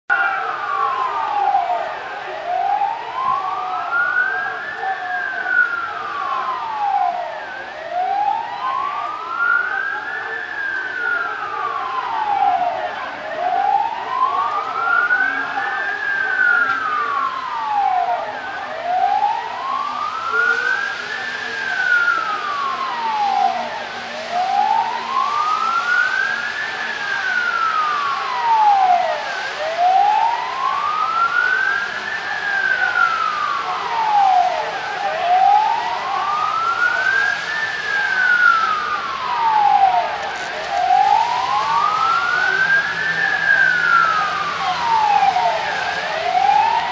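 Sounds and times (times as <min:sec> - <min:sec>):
siren wailing: 0:00.1 - 0:46.9.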